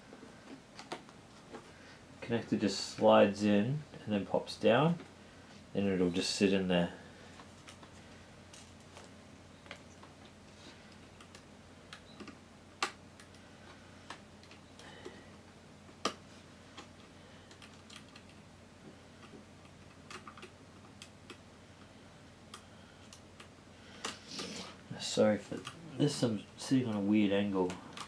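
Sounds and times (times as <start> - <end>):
plastic laptop parts clicking: 16.8 - 18.4, 19.2 - 21.4.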